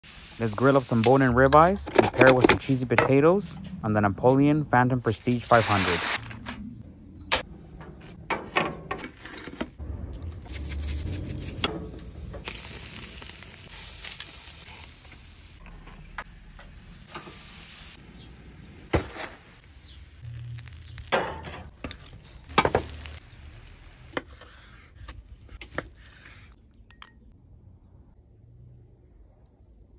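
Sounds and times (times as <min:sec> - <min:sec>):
steak sizzling on grill: 0:00.0 - 0:01.1, 0:10.7 - 0:15.6, 0:16.8 - 0:18.0, 0:19.9 - 0:21.5, 0:22.4 - 0:24.1.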